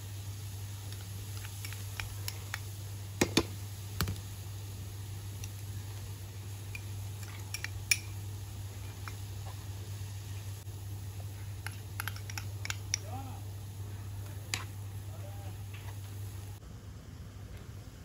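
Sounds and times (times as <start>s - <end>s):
low steady hum: 0.0s - 18.0s
spoon tapping pan: 11.6s - 13.1s.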